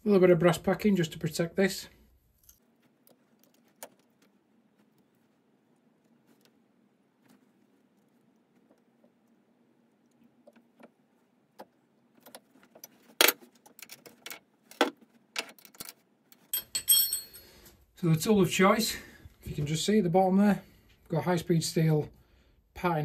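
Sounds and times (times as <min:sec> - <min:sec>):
metal tools clinking on chuck: 0:16.5 - 0:17.6.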